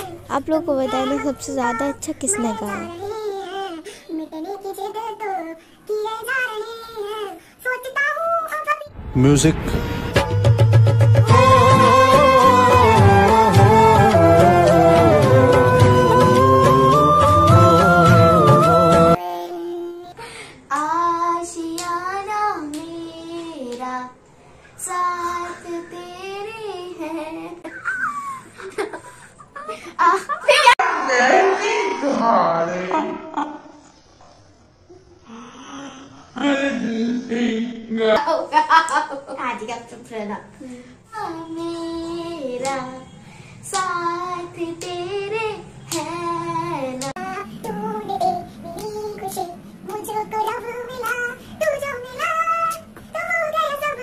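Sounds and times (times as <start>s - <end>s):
girl singing unaccompanied: 0.0s - 9.0s, 10.2s - 24.2s, 24.8s - 27.7s, 40.5s - 54.0s.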